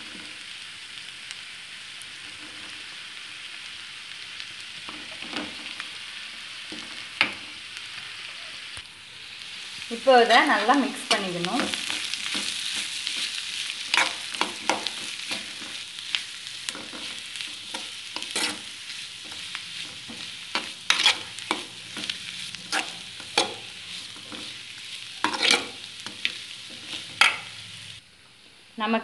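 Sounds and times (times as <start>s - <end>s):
onion mixture sizzling: 0.0s - 29.0s
metal spoon scraping a metal pan: 10.2s - 15.8s, 16.7s - 24.6s, 25.2s - 27.6s.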